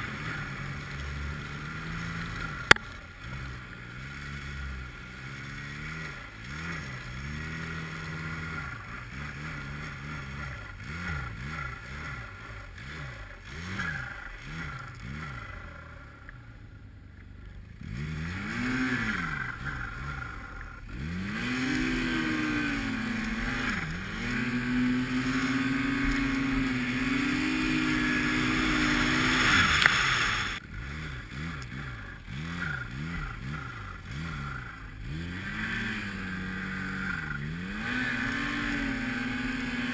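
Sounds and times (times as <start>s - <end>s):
snowmobile engine revving: 0.0s - 39.9s.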